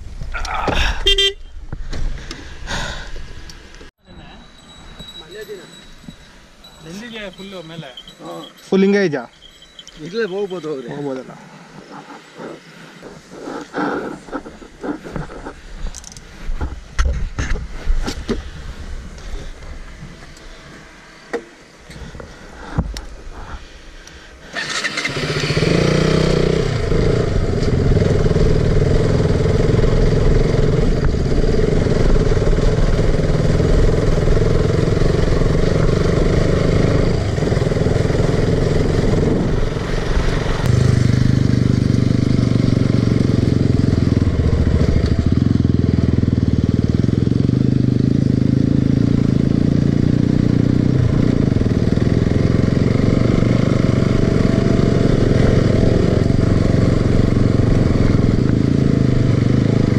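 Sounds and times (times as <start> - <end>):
vehicle engine running: 5.2 - 16.9, 18.3 - 59.9.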